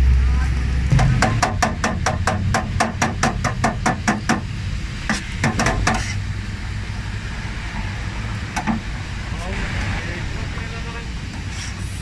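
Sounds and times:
cleaver chopping on steel griddle: 0.9 - 6.2.

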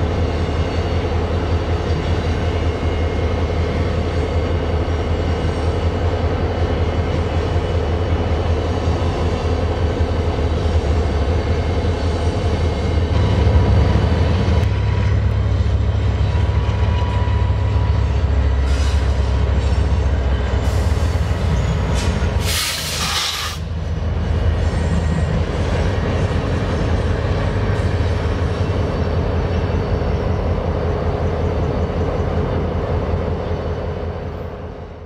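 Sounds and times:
locomotive engine rumble: 0.0 - 35.0
rail and wheel noise: 0.0 - 35.0
loud hiss: 22.4 - 23.7.

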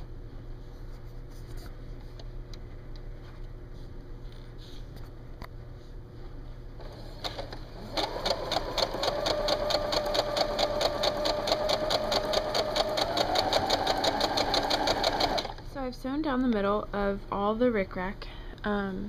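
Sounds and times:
sewing machine running: 6.8 - 15.6.

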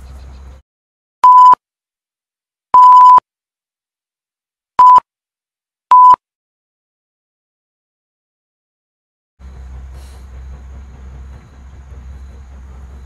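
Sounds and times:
censor bleeps: 1.2 - 1.6, 2.8 - 3.2, 4.8 - 5.0, 5.9 - 6.2.

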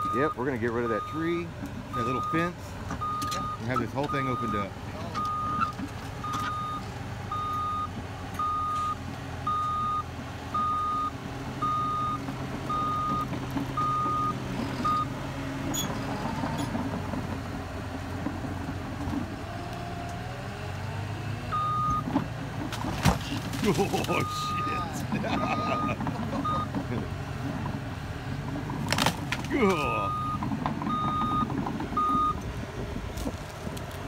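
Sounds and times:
diesel engine running: 0.0 - 34.0
backup alarm beeping: 5.2 - 10.0, 10.6 - 15.1, 24.2 - 26.7, 30.0 - 32.4.

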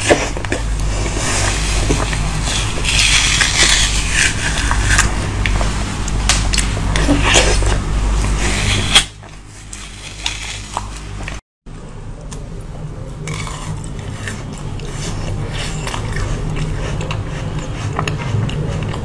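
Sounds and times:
spoon scraping frozen filling: 0.0 - 5.8
crunchy biting and chewing: 0.0 - 11.4, 13.2 - 19.0.

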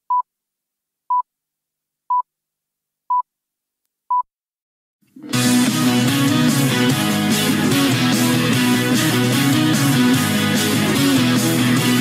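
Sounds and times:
guitar music: 5.1 - 12.0.

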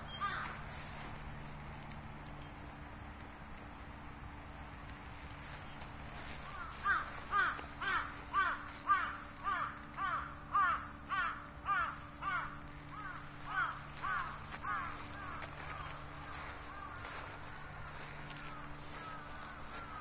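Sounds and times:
faint low hum: 0.0 - 20.0
crow cawing: 0.1 - 0.6, 6.2 - 20.0.

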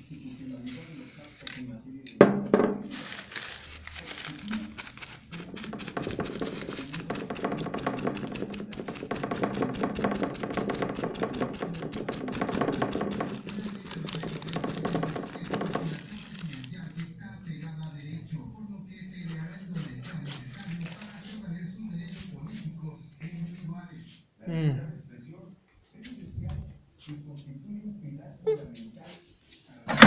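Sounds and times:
hand tool scraping cardstock: 4.7 - 16.8.

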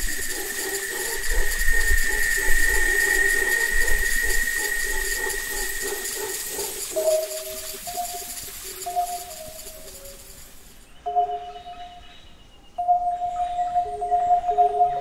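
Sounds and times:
insects droning: 0.0 - 15.0
pulsing insect calls: 0.0 - 15.0.

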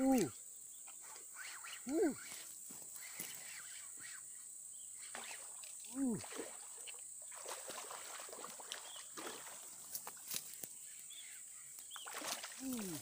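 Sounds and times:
high insect hiss: 0.0 - 13.0.

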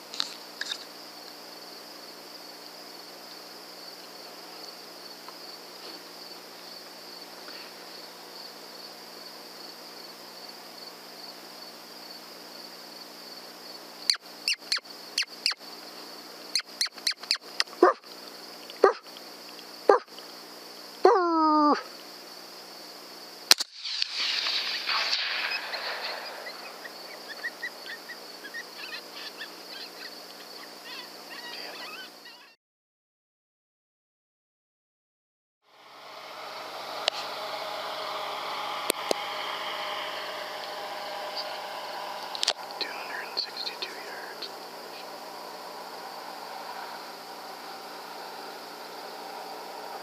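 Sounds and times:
night insects chirring: 0.0 - 32.6, 35.7 - 50.0
coyote barking: 16.5 - 18.0, 18.8 - 19.0, 19.9 - 20.1
sharp crack: 23.5 - 27.8, 36.1 - 46.9.

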